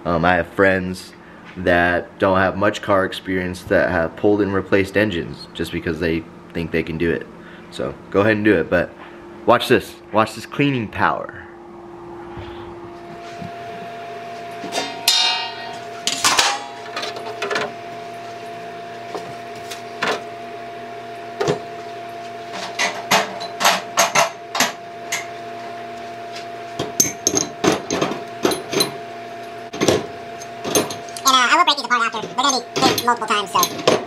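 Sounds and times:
parts cleaner humming: 12.0s - 34.0s.

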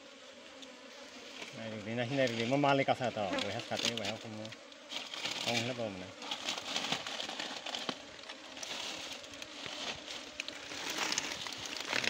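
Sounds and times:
bees wings hissing: 0.0s - 12.0s
dry leaves crackling: 4.9s - 12.0s.

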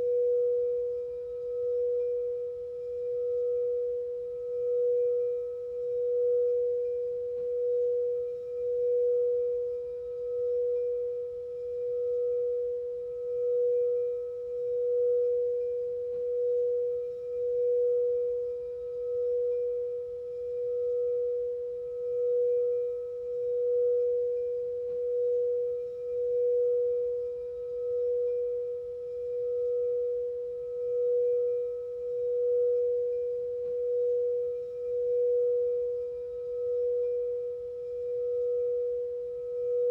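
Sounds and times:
singing bowl note: 0.0s - 39.9s.

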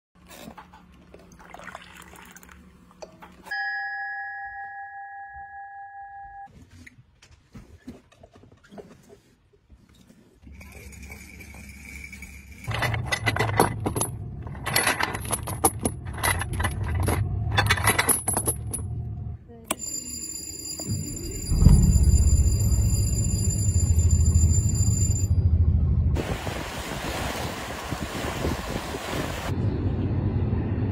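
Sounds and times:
coffee pouring into a mug: 1.2s - 2.6s
steady ringing tone: 19.7s - 25.8s.

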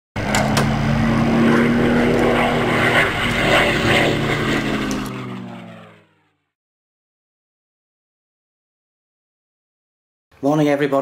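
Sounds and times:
propeller aircraft engine droning: 0.2s - 6.6s.

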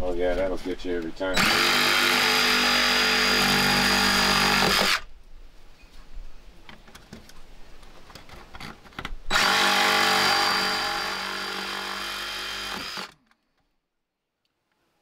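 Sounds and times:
cordless saw motor whining: 9.3s - 13.2s.

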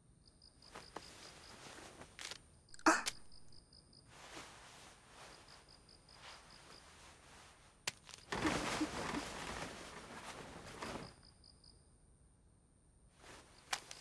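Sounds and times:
faint cricket chirps: 0.0s - 14.0s
bedclothes rustling: 0.6s - 2.4s, 3.2s - 11.4s, 13.2s - 14.0s.

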